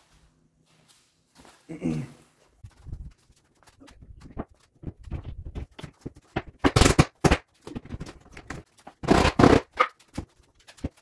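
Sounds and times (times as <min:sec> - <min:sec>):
knocking and scraping: 0:02.8 - 0:11.0
board clicking and knocking: 0:04.2 - 0:11.0.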